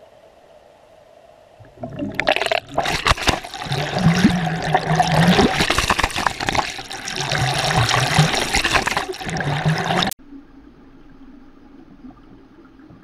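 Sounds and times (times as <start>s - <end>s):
water splashing and bubbling: 1.6s - 10.2s
low hum: 8.9s - 13.0s.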